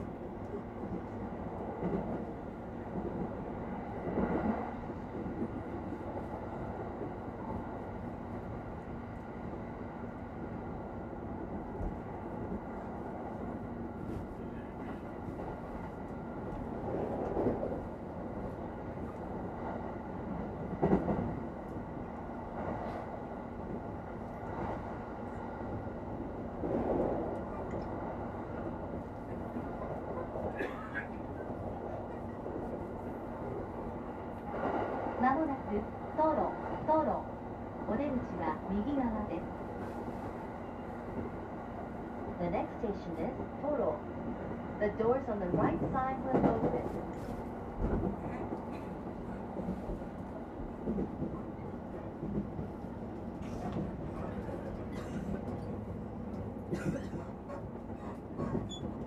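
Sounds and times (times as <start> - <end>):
train wheels and motors rumbling: 45.0 - 59.0.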